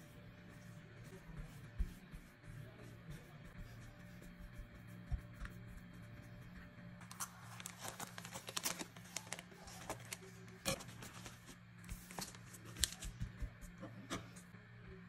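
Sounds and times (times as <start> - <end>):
plastic bag crinkling: 7.1 - 10.2.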